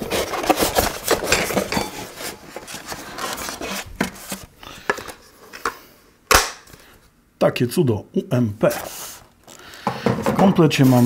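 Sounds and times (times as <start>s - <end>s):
rubbing and scraping against foam: 10.6s - 11.0s.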